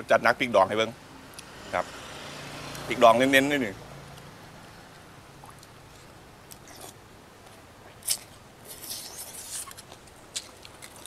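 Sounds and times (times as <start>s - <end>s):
person chewing: 4.9s - 11.0s
wet mouth noises: 4.9s - 11.0s.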